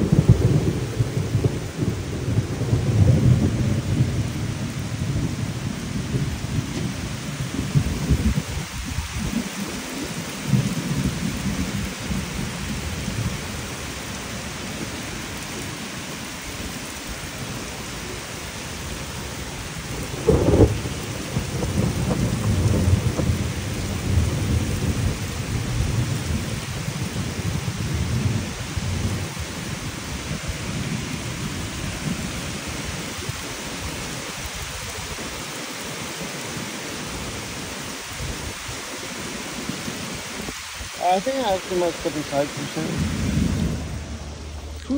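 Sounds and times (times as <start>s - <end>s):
sharp loud thunderclap: 0.0s - 9.5s, 20.0s - 29.2s, 42.8s - 44.6s
low thunder rumbling: 0.0s - 35.4s, 36.6s - 44.9s
steady rain falling: 0.0s - 44.9s.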